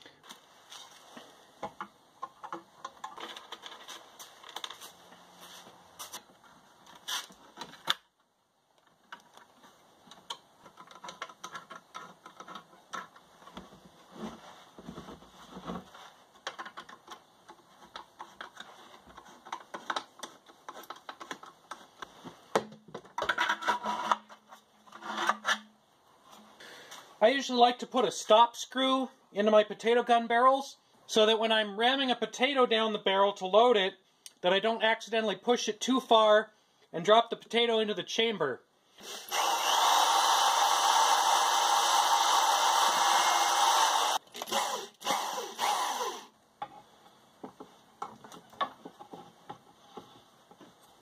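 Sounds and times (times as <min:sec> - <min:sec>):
plastic and metal clicks and rattles: 0:10.1 - 0:13.6.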